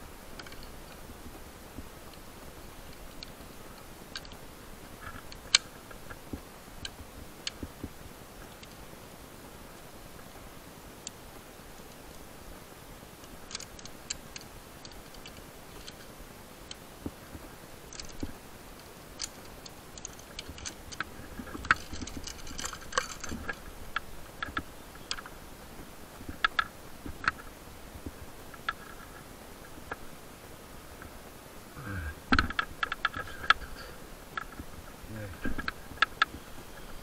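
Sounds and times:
faint steady hiss: 0:00.0 - 0:37.0.

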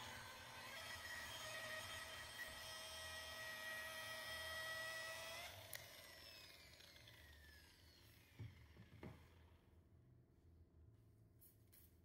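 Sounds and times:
angle polisher whining: 0:00.0 - 0:09.5.

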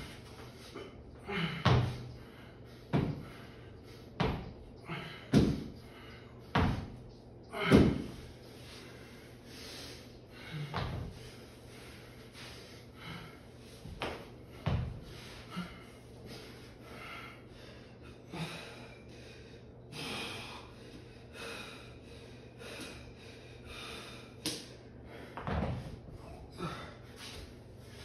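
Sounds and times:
man breathing hard: 0:00.0 - 0:06.6, 0:07.5 - 0:28.0
heavy thud: 0:01.6 - 0:02.0, 0:05.3 - 0:05.7, 0:06.6 - 0:07.0, 0:07.6 - 0:08.2.

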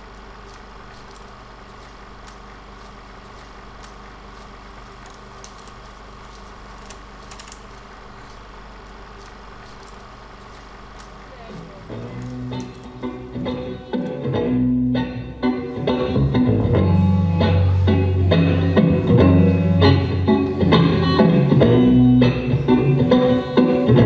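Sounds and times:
faint clicks: 0:00.0 - 0:11.3
room tone hum and hiss: 0:00.0 - 0:24.0.

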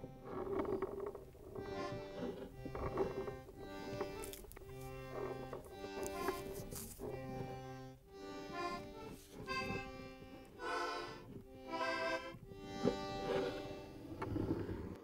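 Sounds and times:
film score with reedy notes: 0:00.0 - 0:15.0.

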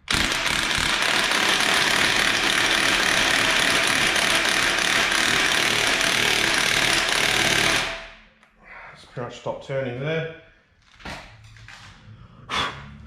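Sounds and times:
impact wrench hammering: 0:00.0 - 0:08.3.

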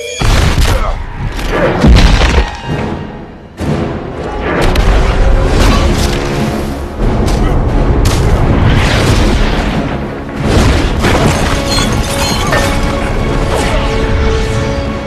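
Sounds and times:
film music score: 0:00.0 - 0:15.0
heavy booms and crashing impacts: 0:07.6 - 0:11.4.

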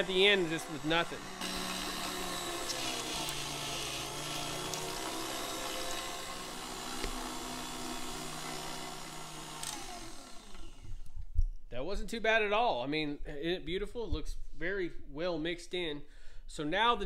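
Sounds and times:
stand mixer grinding meat: 0:00.0 - 0:10.8.

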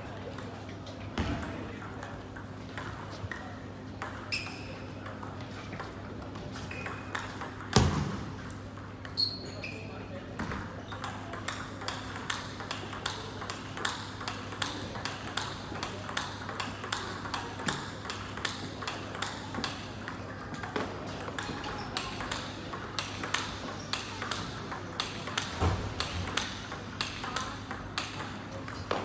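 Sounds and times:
table tennis ball clicking: 0:10.5 - 0:29.0.

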